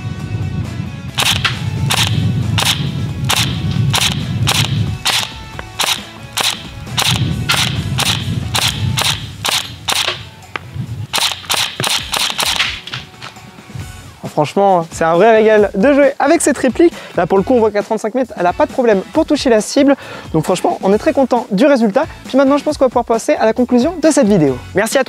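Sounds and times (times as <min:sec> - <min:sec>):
airsoft pistol shots snapping: 0:01.2 - 0:10.4, 0:11.1 - 0:13.1.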